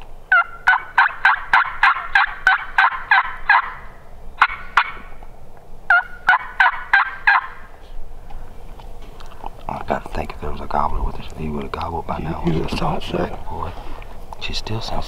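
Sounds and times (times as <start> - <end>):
turkey hen yelping: 0.3 - 5.2, 5.9 - 8.0.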